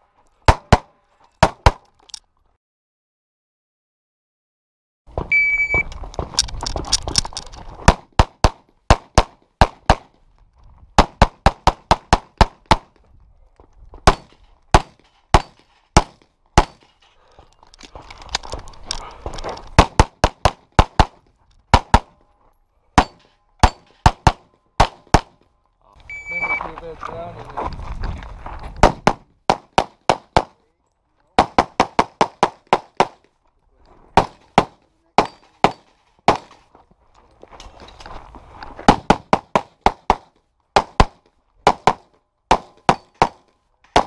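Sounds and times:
shot timer beep: 5.3 - 5.9, 26.0 - 26.6
movement noise: 16.8 - 19.8, 25.6 - 29.0.

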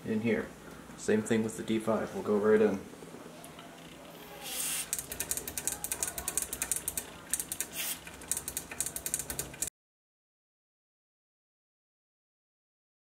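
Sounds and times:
short spurts and clicks: 4.1 - 9.7
aerosol spray hiss: 4.4 - 5.0, 7.7 - 8.0.

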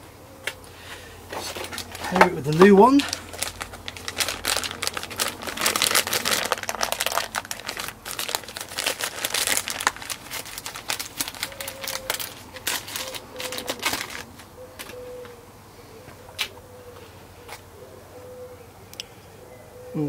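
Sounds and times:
plastic bag crinkling: 1.3 - 15.0.

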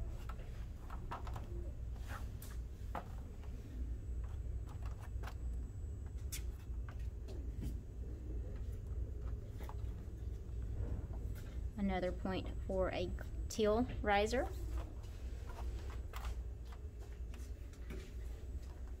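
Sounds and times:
low hum: 2.5 - 16.6.

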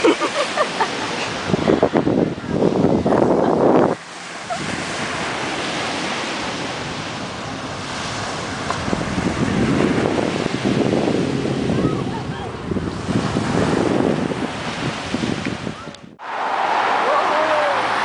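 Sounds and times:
small surf breaking on sand: 0.0 - 12.1
wind buffeting microphone: 0.9 - 16.2.

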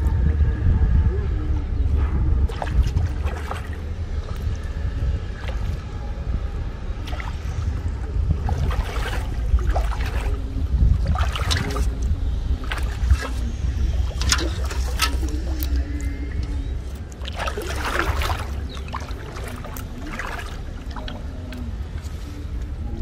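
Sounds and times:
wind rumble on microphone: 0.0 - 23.0
water splashing off fishing net: 8.4 - 12.0, 12.6 - 13.4, 14.0 - 15.7, 17.2 - 21.0.

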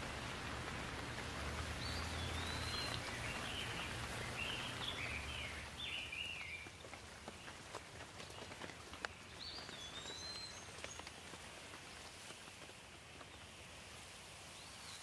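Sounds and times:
bird calling: 0.0 - 7.6
light rain hissing: 0.0 - 15.0
raindrops on leaves: 0.0 - 15.0.

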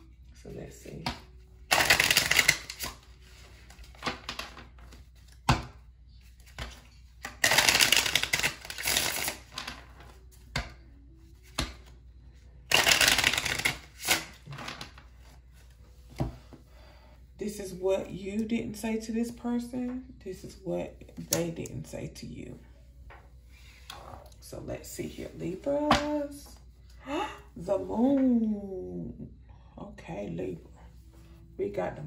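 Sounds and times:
cards being shuffled: 1.0 - 10.8, 12.7 - 16.4.

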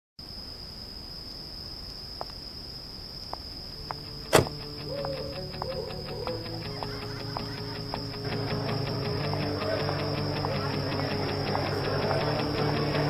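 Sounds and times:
sharp click: 4.3 - 4.7.

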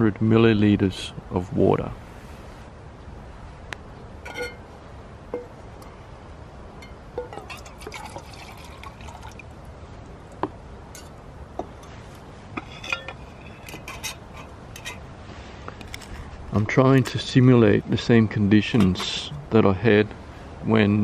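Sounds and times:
mug clinking and knocking: 4.3 - 4.6, 5.4 - 5.6, 6.8 - 8.7
water pouring into metal mug: 7.2 - 9.5.

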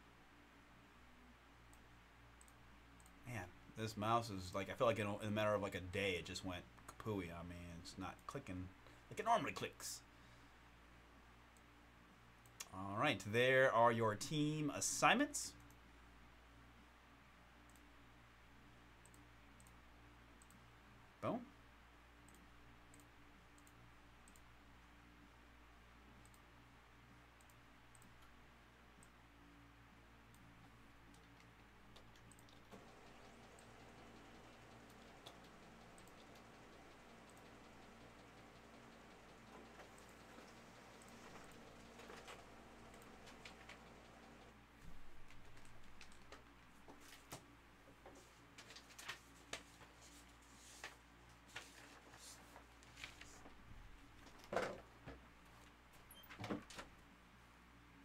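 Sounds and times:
low electrical hum: 0.0 - 58.0
faint clicks and taps: 30.4 - 50.2.

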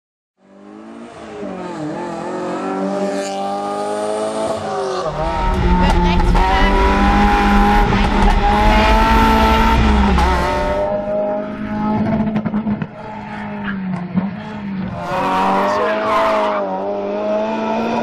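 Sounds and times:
car engine at high revs: 0.4 - 18.0
tyre and road noise: 4.5 - 16.9.

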